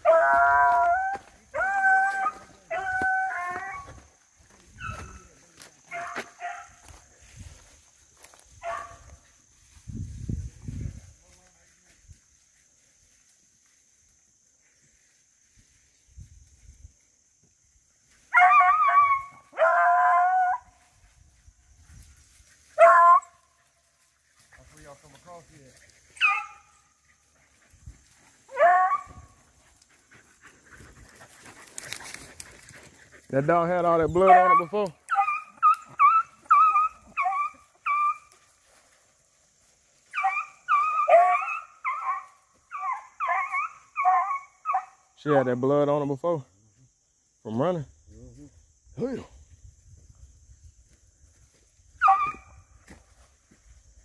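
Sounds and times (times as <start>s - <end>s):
dog howling: 0.0s - 4.0s, 18.4s - 20.7s, 28.5s - 29.3s, 34.2s - 38.3s, 40.2s - 44.9s
hounds yelping: 0.0s - 5.3s, 5.9s - 7.0s, 8.3s - 9.2s, 18.2s - 20.8s, 22.5s - 24.8s, 25.8s - 38.6s, 40.0s - 45.1s, 51.9s - 52.7s.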